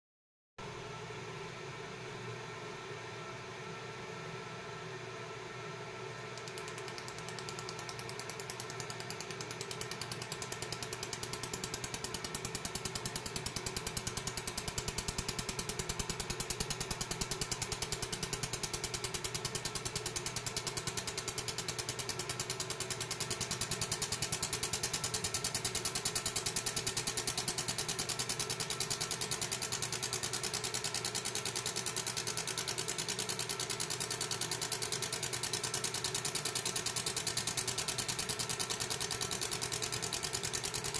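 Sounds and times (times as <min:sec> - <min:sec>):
machine hum: 0:05.6 - 0:19.2
laser engraving buzzing crackle: 0:06.4 - 0:22.0.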